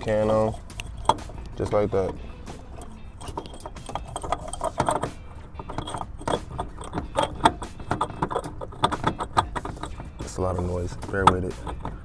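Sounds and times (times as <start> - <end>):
metallic clicks knocks and rattles: 0.0 - 12.0.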